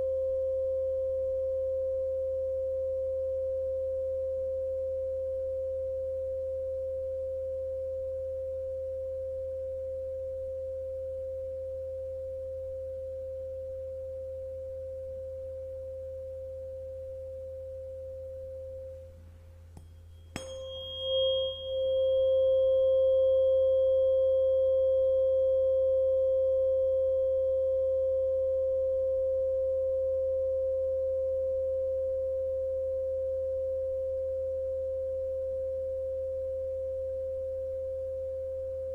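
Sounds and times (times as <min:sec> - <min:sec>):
tuning fork ringing: 0:00.0 - 0:38.9
tuning fork struck with a click: 0:13.7 - 0:38.9.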